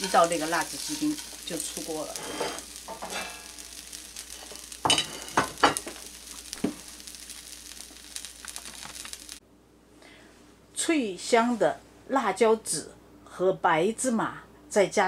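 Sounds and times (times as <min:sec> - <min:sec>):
chicken sizzling in a frying pan: 0:00.0 - 0:09.4.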